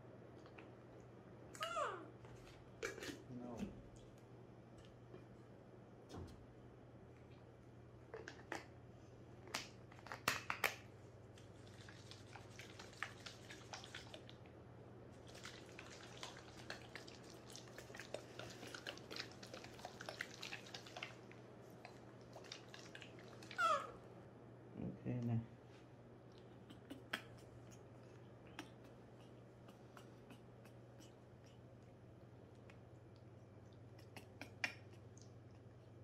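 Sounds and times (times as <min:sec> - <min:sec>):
baby monkey squealing: 0:23.6 - 0:24.0.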